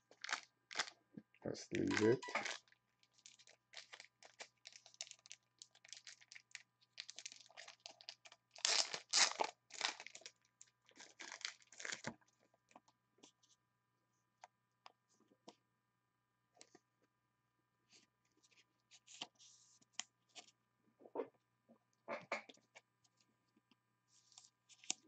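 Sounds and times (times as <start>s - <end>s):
plastic packaging crinkling: 0.1s - 0.9s, 1.8s - 12.1s.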